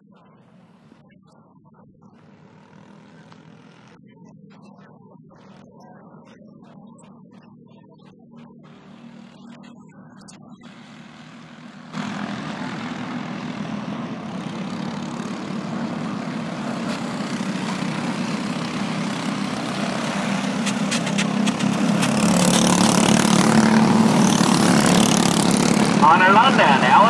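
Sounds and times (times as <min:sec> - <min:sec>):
kart engines racing: 0:10.7 - 0:27.0.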